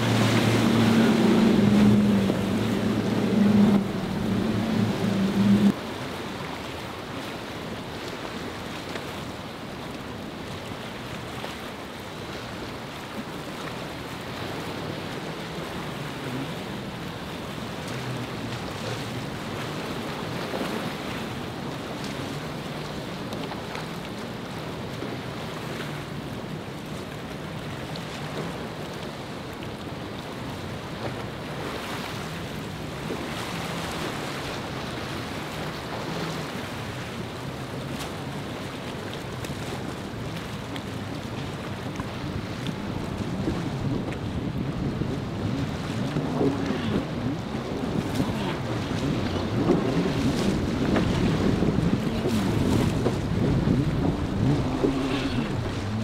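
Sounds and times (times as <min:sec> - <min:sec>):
wind buffeting microphone: 0:00.0 - 0:05.8, 0:41.0 - 0:56.0
motorboat engine drone: 0:00.0 - 0:06.9, 0:09.6 - 0:56.0
surf and choppy waves rushing: 0:00.0 - 0:56.0.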